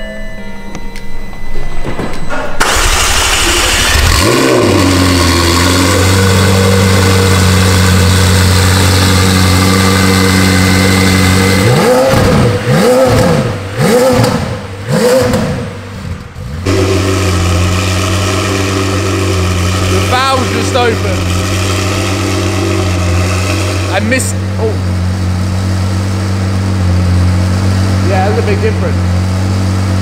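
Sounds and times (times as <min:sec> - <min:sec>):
engine revving: 0:02.6 - 0:30.0
sports car engine idling: 0:02.6 - 0:30.0.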